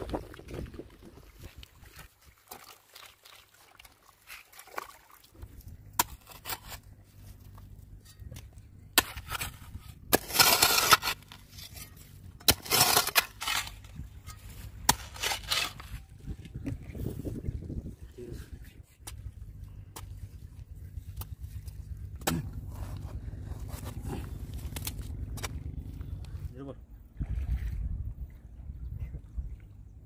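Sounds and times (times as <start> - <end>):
hoe scraping wet sand: 5.4 - 16.2, 18.3 - 26.4.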